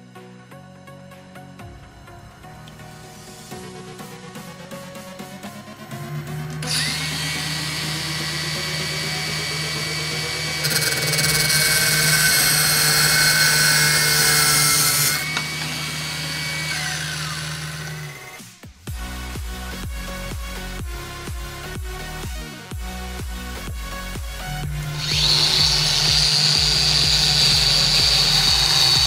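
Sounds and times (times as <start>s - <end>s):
angle grinder whine: 2.5s - 18.5s, 24.4s - 29.0s
drill press motor running: 6.6s - 18.4s, 24.7s - 29.0s
grinder disc grinding steel: 6.6s - 18.4s, 24.8s - 29.0s.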